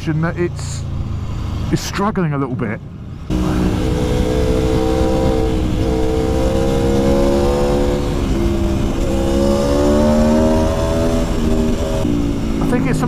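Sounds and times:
motorcycle engine accelerating: 3.1s - 13.0s.

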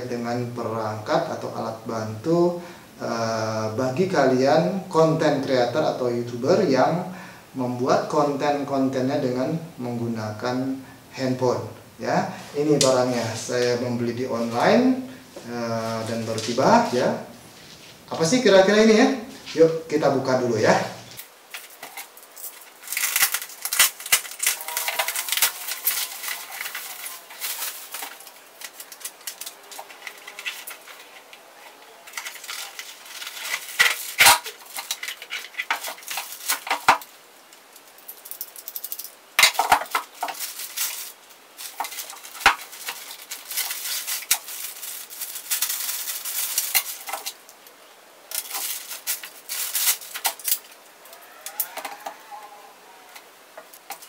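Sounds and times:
bubble wrap and plastic crinkling: 12.1s - 54.0s.

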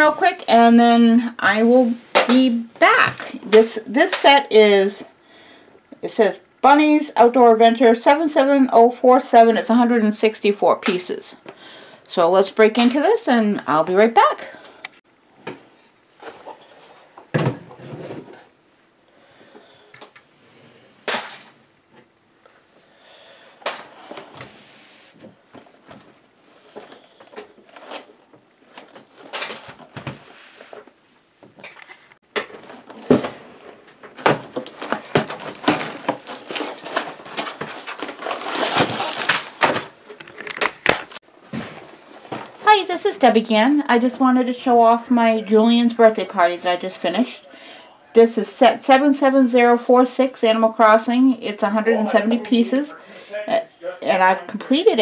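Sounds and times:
plastic bags crinkling: 26.7s - 30.8s, 32.3s - 41.2s.

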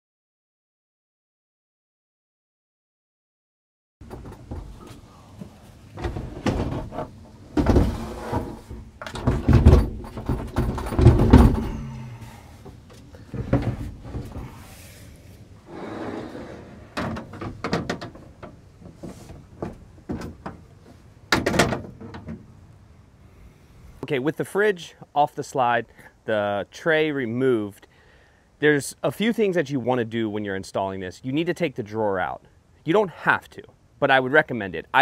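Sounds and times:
fridge clunks and thuds: 6.0s - 12.0s, 21.3s - 22.4s.

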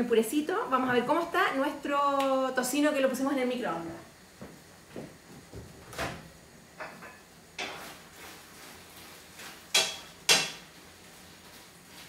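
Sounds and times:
kitchen clicks and knocks: 6.8s - 7.9s, 9.7s - 10.6s.

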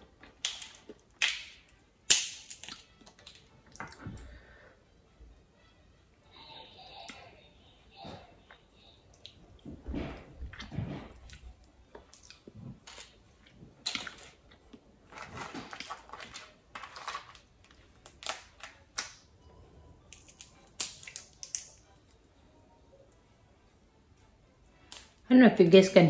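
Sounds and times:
crawfish shells cracking: 0.3s - 3.8s, 15.1s - 19.3s, 20.1s - 22.2s.

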